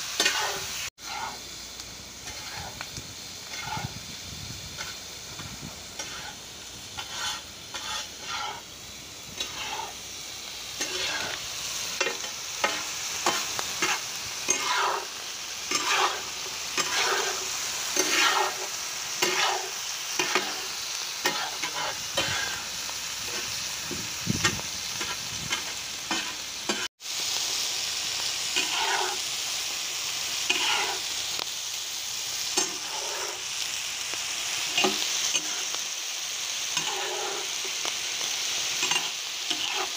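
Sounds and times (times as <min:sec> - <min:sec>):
chicken sizzling in pan: 0:00.0 - 0:39.9
metal spatula scraping pan: 0:00.2 - 0:01.4, 0:02.2 - 0:02.8, 0:03.5 - 0:03.9, 0:06.0 - 0:06.4, 0:07.0 - 0:08.7, 0:09.4 - 0:10.0, 0:10.8 - 0:11.4, 0:15.7 - 0:20.6, 0:28.6 - 0:29.2, 0:30.5 - 0:31.1, 0:32.6 - 0:33.4, 0:36.8 - 0:37.7, 0:38.8 - 0:39.9.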